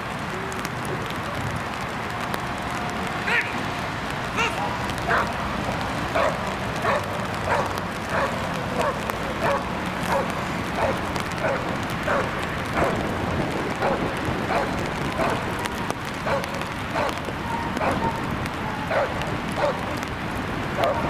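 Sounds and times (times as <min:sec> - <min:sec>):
dog barking: 0:05.1 - 0:05.4, 0:06.1 - 0:13.0, 0:13.8 - 0:15.4, 0:16.2 - 0:17.2, 0:17.8 - 0:18.2, 0:18.9 - 0:19.9, 0:20.8 - 0:21.0.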